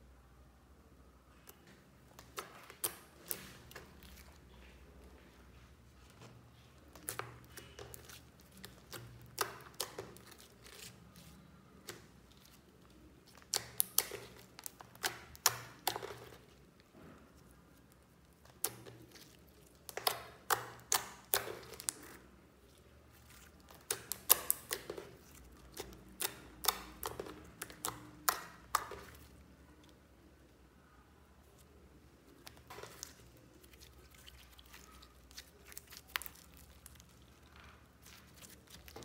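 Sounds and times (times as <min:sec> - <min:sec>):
slime clicking and popping: 0:07.0 - 0:10.9, 0:13.3 - 0:16.4, 0:18.4 - 0:22.2, 0:23.6 - 0:29.3, 0:32.4 - 0:37.3.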